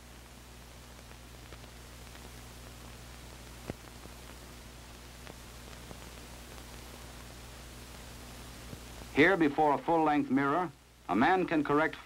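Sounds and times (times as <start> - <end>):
film soundtrack hiss and hum: 0.0 - 12.0
faint crackle clicks: 0.5 - 9.1.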